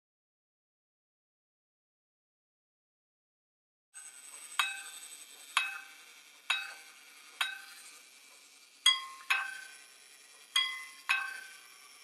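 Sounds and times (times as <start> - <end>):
watch repeater striking gong: 10.6 - 11.6.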